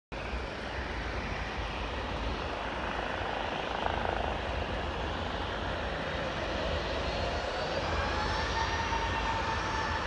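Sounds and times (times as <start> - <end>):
distant jet engines roaring: 0.2 - 10.0.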